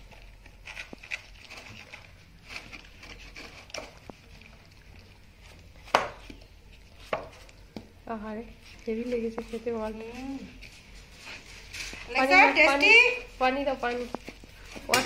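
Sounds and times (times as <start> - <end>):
dog licking and chewing food: 0.0 - 7.7.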